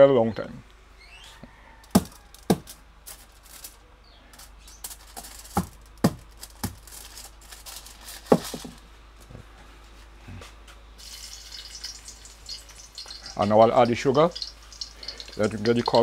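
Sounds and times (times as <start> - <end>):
foil crackling and crinkling: 2.0 - 8.9, 11.0 - 16.0.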